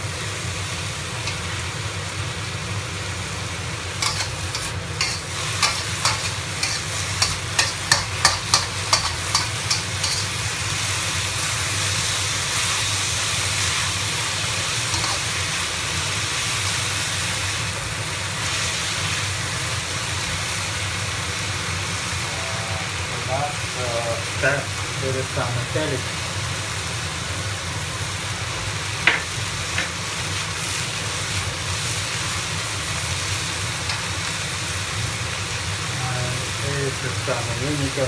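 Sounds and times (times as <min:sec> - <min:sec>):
potatoes sizzling in oil: 0:00.0 - 0:38.0
spatula clanking on a wok: 0:04.0 - 0:10.3, 0:14.9 - 0:15.3.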